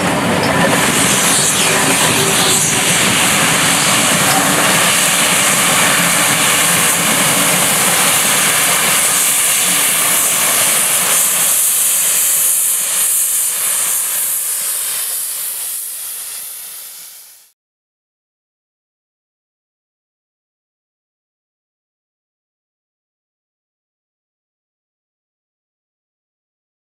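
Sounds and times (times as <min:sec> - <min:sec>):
steam train passing: 0:00.0 - 0:17.5
loud hiss of steam: 0:00.0 - 0:17.6.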